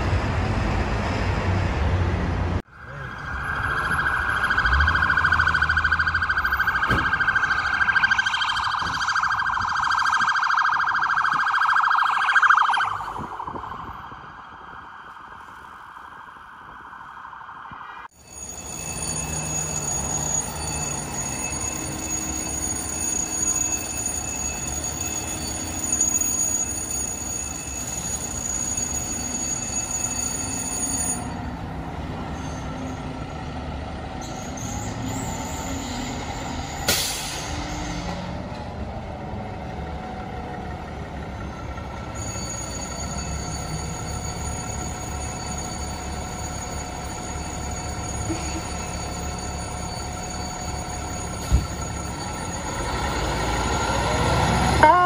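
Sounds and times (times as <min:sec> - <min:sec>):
siren wailing: 0:02.7 - 0:31.4, 0:42.7 - 0:55.0
air brake hiss: 0:36.8 - 0:37.8
fire truck diesel engine running: 0:36.9 - 0:55.0.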